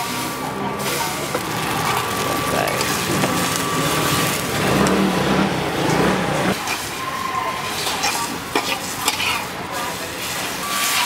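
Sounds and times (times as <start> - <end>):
noodles sizzling in hot oil: 0.8 - 5.6, 6.5 - 11.0
low rumble: 1.3 - 6.6.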